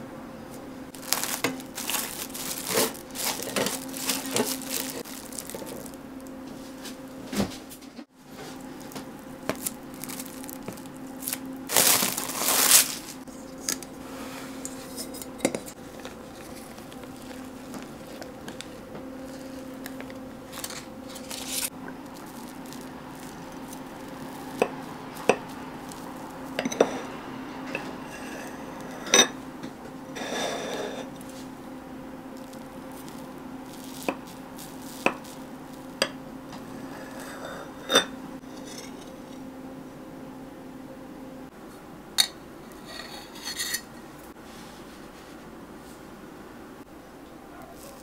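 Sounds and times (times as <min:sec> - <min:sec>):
steady low hum: 0:00.0 - 0:48.0
baking paper rustling: 0:00.9 - 0:07.6, 0:08.3 - 0:27.2, 0:32.3 - 0:37.4, 0:47.7 - 0:48.0.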